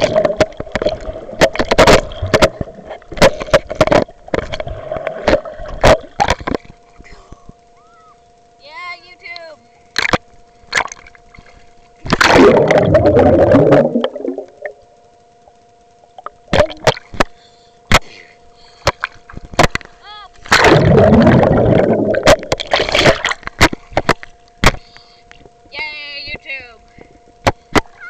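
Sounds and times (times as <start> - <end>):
faint steady hum: 0.0 - 28.0
water rushing against microphone: 12.0 - 14.8, 20.5 - 23.8.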